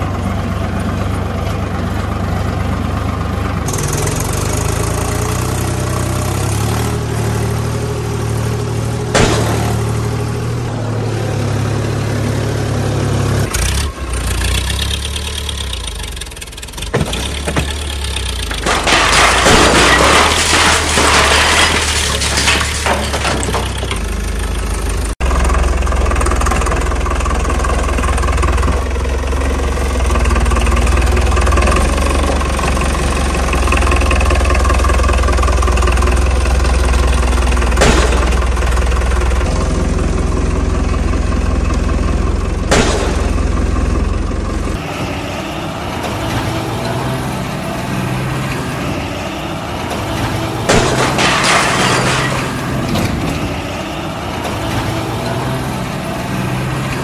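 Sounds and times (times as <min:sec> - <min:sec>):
engine running: 0:00.0 - 0:57.0.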